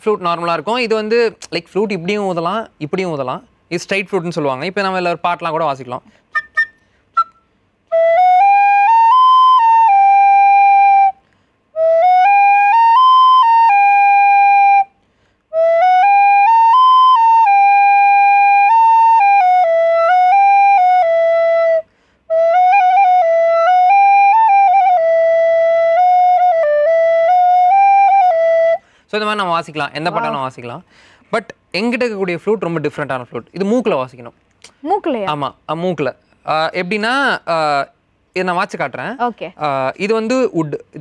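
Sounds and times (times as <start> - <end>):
recorder playing a melody: 6.3 - 11.2, 30.1 - 30.5
player breathing: 30.9 - 31.3.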